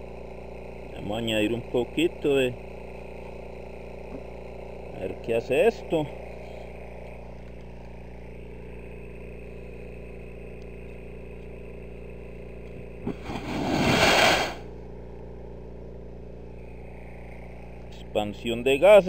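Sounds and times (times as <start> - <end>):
whoosh of burning gas: 13.1 - 14.7.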